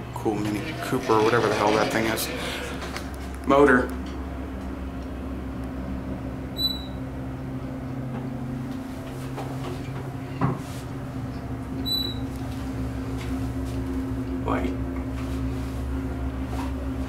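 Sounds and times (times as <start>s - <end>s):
elevator pump motor humming: 0.0s - 17.0s
short high beeps: 6.6s - 7.0s.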